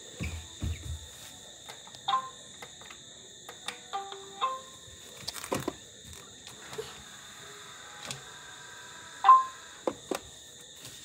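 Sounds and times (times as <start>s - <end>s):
robot vacuum high-pitched whine: 6.5s - 10.1s.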